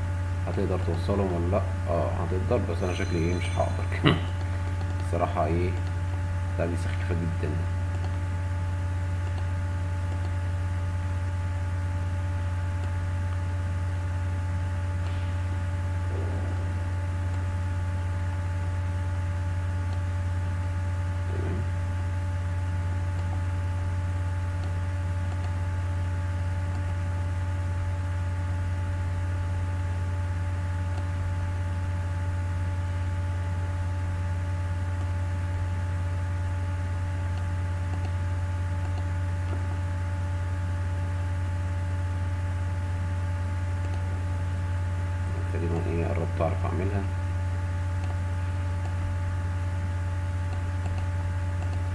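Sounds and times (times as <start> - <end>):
low electrical hum: 0.0 - 51.9
faint steady tones: 0.6 - 5.9.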